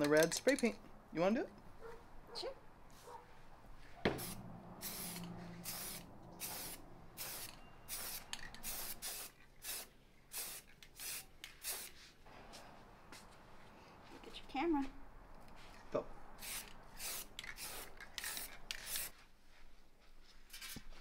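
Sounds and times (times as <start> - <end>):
spray paint can hissing: 4.1 - 12.0, 16.4 - 19.2.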